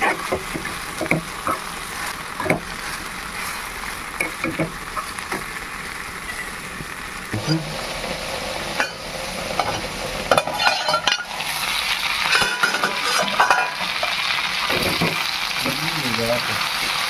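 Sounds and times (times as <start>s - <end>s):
curry sizzling in a pan: 0.0s - 17.0s
utensil scraping a pan: 9.6s - 15.2s.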